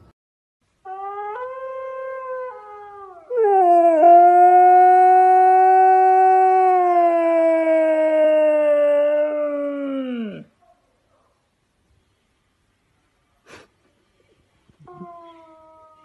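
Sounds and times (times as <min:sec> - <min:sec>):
dog howling: 0:00.9 - 0:10.5.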